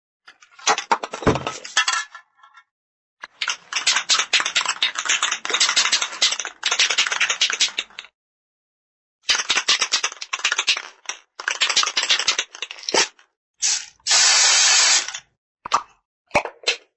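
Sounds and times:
spray can shaking rattle: 3.2 - 8.1, 9.2 - 15.2.

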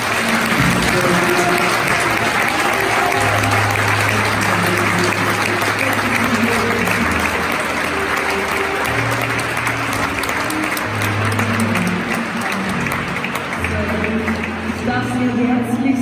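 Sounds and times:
audience applauding: 0.0 - 15.3.

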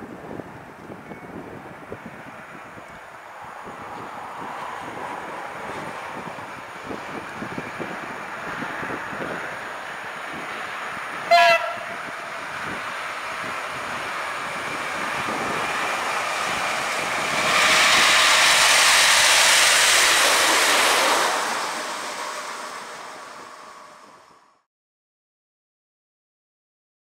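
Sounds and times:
locomotive wheels on rails: 0.0 - 24.5
locomotive horn blast: 11.2 - 12.4.

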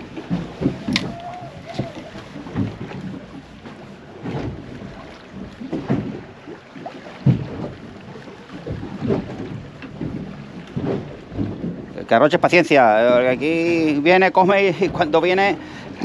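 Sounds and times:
wind on microphone: 0.0 - 6.4
waves slapping boat hull: 0.0 - 16.0.

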